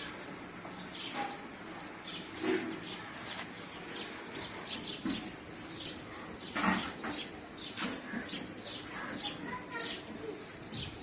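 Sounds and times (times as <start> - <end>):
sparrows chirping: 0.0 - 11.0.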